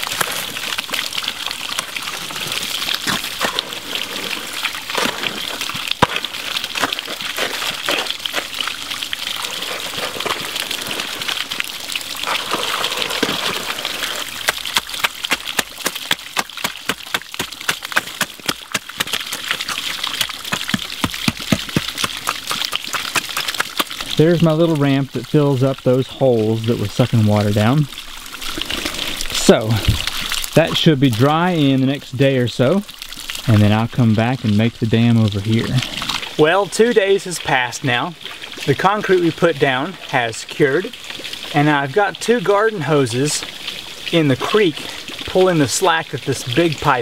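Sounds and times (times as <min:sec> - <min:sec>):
creek water running: 0:00.0 - 0:47.0
hoe scraping wet concrete: 0:02.2 - 0:08.6, 0:09.4 - 0:11.6, 0:12.2 - 0:23.9.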